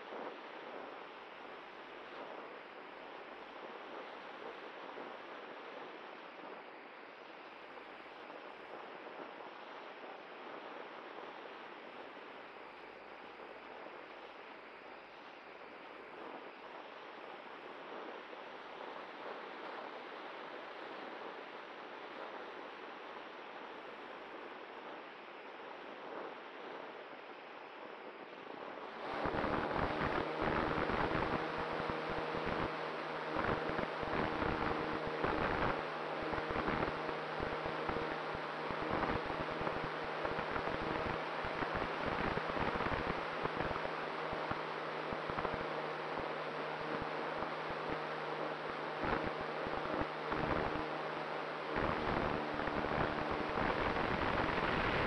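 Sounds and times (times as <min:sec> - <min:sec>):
electric motor and propeller humming: 0:29.0 - 0:55.0.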